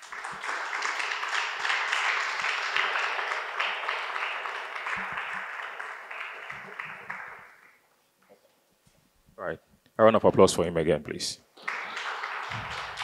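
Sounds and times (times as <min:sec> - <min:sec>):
audience applauding: 0:00.0 - 0:07.8, 0:11.6 - 0:13.0.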